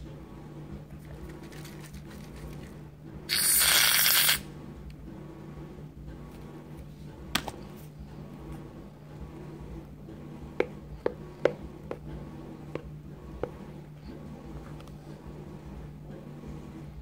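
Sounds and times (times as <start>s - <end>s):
low steady hum: 0.0s - 17.0s
spoon stirring thick slime: 0.9s - 2.8s.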